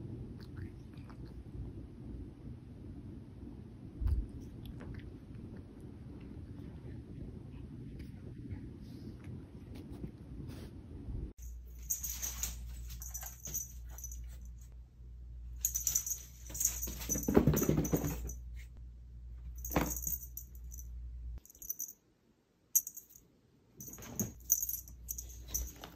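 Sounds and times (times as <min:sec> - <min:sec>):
small bell jingling: 0:11.4 - 0:14.7, 0:15.6 - 0:18.5, 0:19.6 - 0:22.0, 0:22.8 - 0:23.2, 0:23.8 - 0:25.9.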